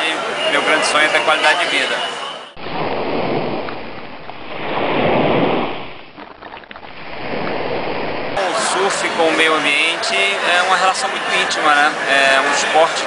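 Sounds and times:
ocean waves breaking: 2.6 - 9.5.

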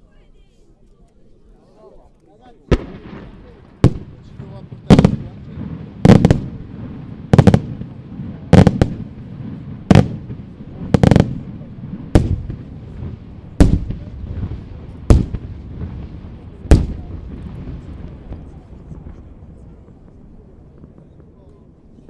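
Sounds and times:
firework shells bursting: 9.9 - 11.5.

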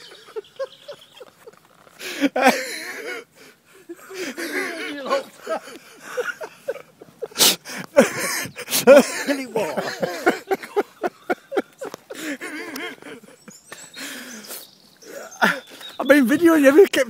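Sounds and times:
man laughing hard: 0.0 - 13.4.

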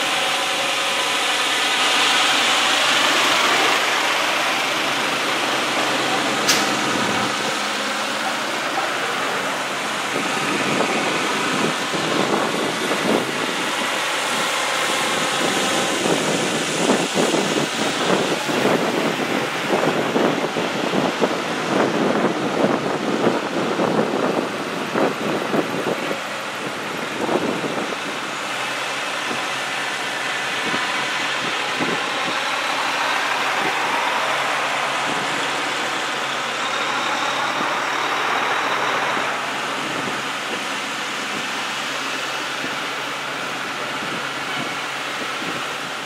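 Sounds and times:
heavy vehicles passing: 0.0 - 46.0
sharp click: 6.4 - 6.8.

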